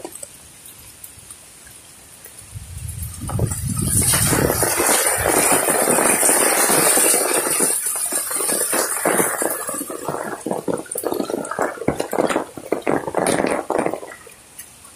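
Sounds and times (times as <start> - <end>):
floodwater rushing: 0.0 - 14.9.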